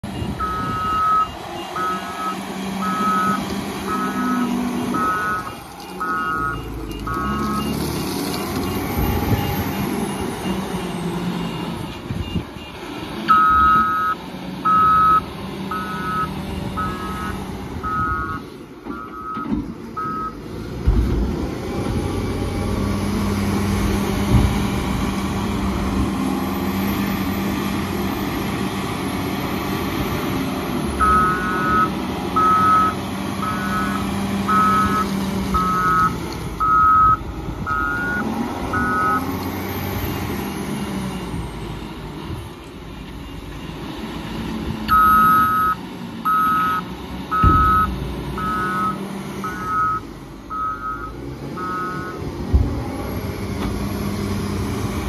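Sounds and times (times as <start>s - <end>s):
wheel loader diesel engine: 0.0s - 55.0s
reversing alarm beeping: 0.2s - 7.9s, 13.3s - 20.4s, 31.0s - 39.2s, 44.9s - 52.2s.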